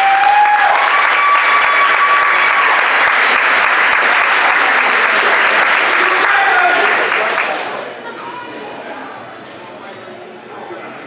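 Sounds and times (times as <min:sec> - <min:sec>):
long held whoop: 0:00.0 - 0:02.8
crowd applauding and cheering: 0:00.0 - 0:08.0.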